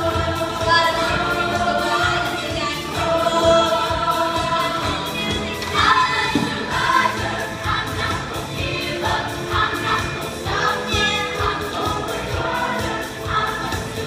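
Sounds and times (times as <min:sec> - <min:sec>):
female choir singing: 0:00.0 - 0:14.0.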